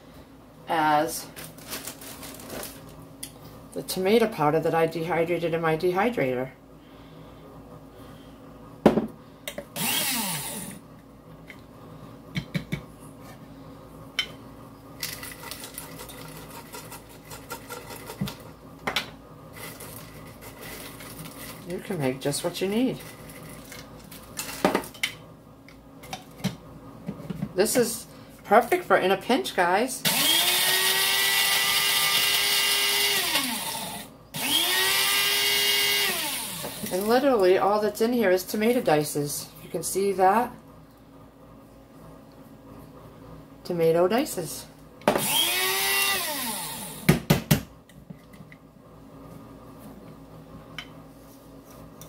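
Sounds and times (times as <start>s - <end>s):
rustling and scraping: 1.3s - 3.0s
knock on tabletop: 8.8s - 9.1s
electric grinder motor whine: 9.8s - 10.8s, 30.1s - 37.0s, 45.2s - 47.1s.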